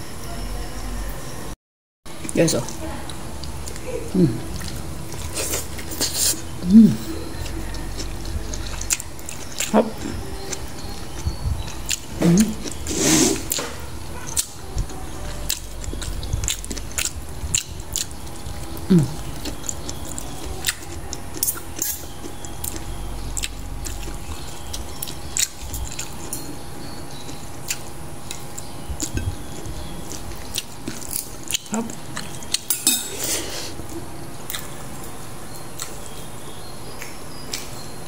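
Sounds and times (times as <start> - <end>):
cutlery clinking on ceramic plates: 32.7 - 33.4.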